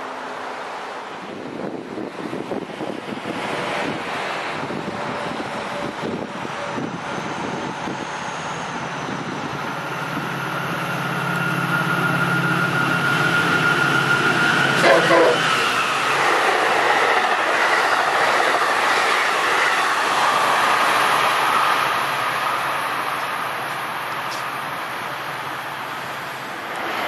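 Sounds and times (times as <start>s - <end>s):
diesel locomotive engine drone: 0.0s - 27.0s
low wind buffeting: 1.1s - 14.8s, 15.4s - 24.8s
wind rushing on microphone: 1.2s - 10.4s.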